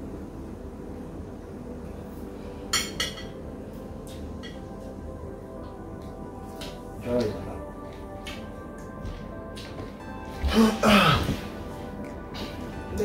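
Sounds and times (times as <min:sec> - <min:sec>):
tableware clinking: 0:02.7 - 0:03.4.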